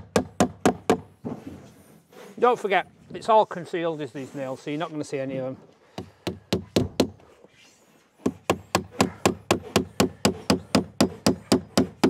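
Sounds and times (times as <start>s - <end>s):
hammer driving a nail: 0.0s - 1.1s, 8.2s - 12.0s.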